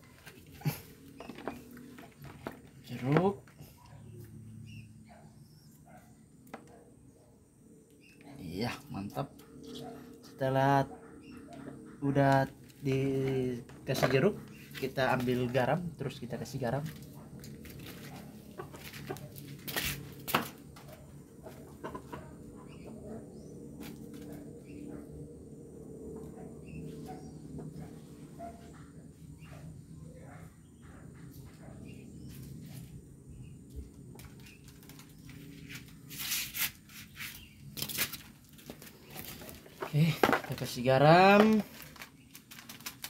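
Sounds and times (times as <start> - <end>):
small scuffs: 17.6 - 20.5
plastic bag crinkling: 41.3 - 43.0.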